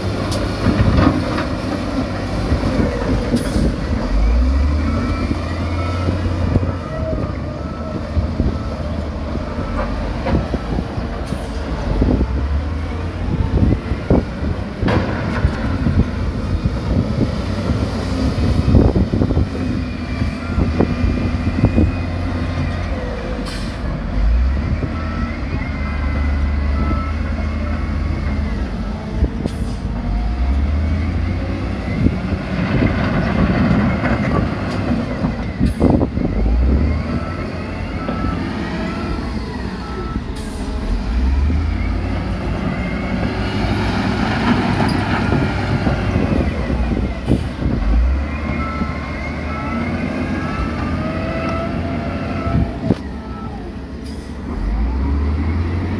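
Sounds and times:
heavy diesel engines revving: 0.0s - 55.9s
reversing alarm beeping: 4.0s - 9.8s, 19.7s - 22.6s, 24.2s - 28.8s, 35.2s - 43.9s, 48.1s - 53.7s.

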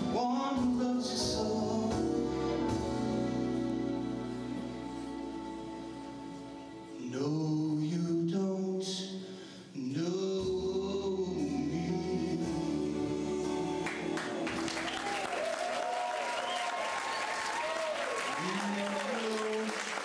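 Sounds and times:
man singing into a microphone: 0.0s - 2.8s, 7.0s - 13.8s
soft musical accompaniment: 0.0s - 9.1s, 9.8s - 15.2s
audience applause: 13.8s - 20.0s.

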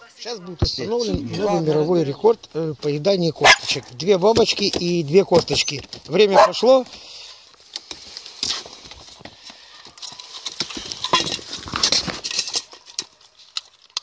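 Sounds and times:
dog crunching bones: 10.1s - 14.0s.

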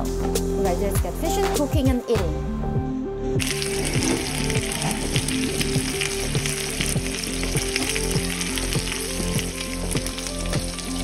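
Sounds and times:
fish frying in hot oil: 3.4s - 11.0s.

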